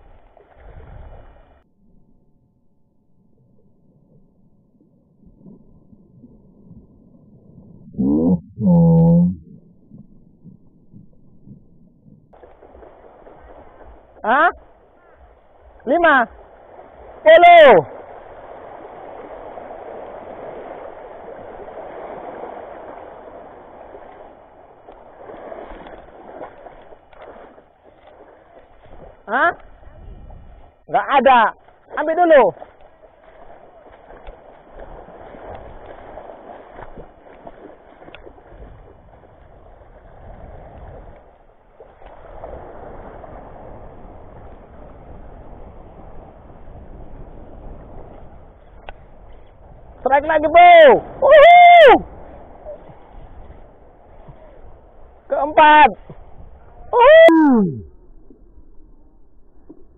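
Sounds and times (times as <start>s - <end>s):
wind rumbling on microphone: 0.0s - 1.6s, 5.2s - 59.9s
seawater washing over rocks: 12.3s - 29.9s, 30.5s - 46.3s
faint clicks: 48.8s - 49.5s.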